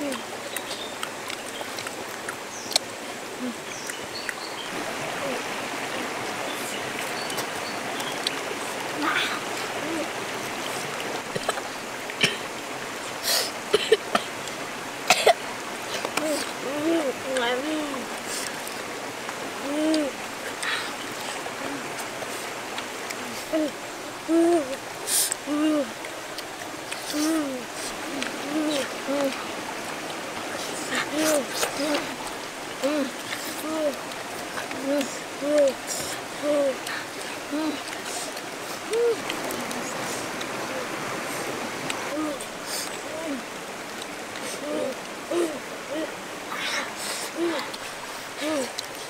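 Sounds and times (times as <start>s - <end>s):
stream water rushing over stones: 0.0s - 49.0s
boy humming mmm while eating: 3.4s - 3.6s, 19.6s - 21.0s, 23.1s - 26.0s, 27.0s - 29.4s, 30.6s - 32.2s, 32.8s - 34.0s, 34.6s - 41.5s, 42.1s - 43.5s, 44.4s - 48.9s.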